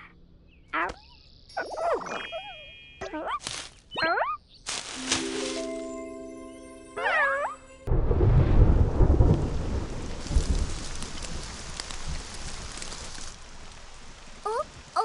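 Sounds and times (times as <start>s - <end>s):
thunder rumble: 7.8s - 14.4s
heavy rain hiss: 7.9s - 15.0s.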